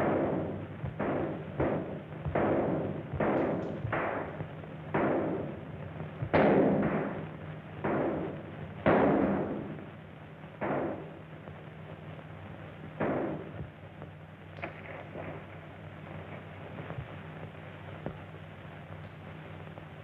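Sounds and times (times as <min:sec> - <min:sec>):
echoing gunshots: 0:00.0 - 0:09.9, 0:10.6 - 0:11.2, 0:13.0 - 0:13.6
steady low hum: 0:00.0 - 0:20.0.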